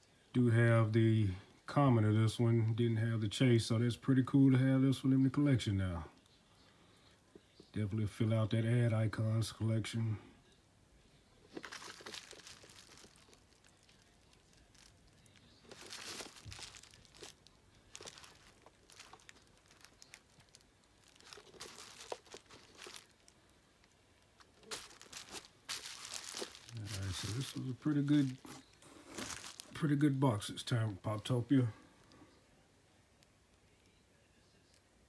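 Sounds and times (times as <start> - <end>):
bubble wrap crinkling: 11.5 - 32.2.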